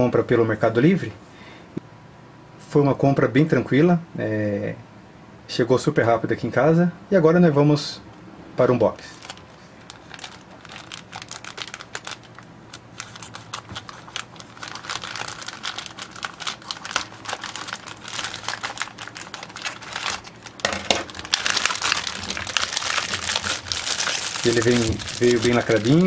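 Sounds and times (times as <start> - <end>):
plastic torn and crumpled: 9.0 - 26.0.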